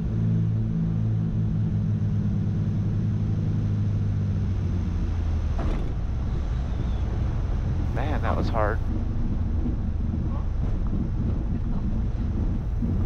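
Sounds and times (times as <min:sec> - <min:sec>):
twin piston aircraft engines droning: 0:00.0 - 0:13.0
wheels thumping on touchdown: 0:08.8 - 0:13.0.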